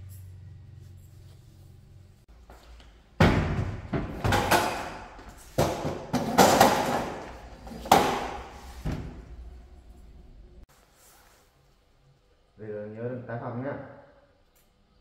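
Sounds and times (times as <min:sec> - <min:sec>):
metal cabinet drawers banging shut: 0:03.2 - 0:09.4.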